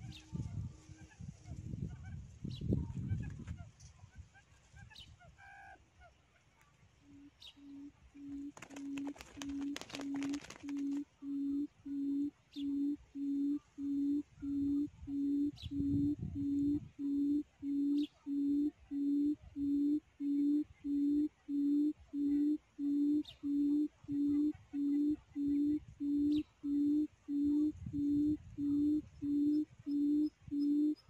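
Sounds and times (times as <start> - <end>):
faint high chirps: 6.6 - 31.0
low hooting lure call: 7.0 - 31.0.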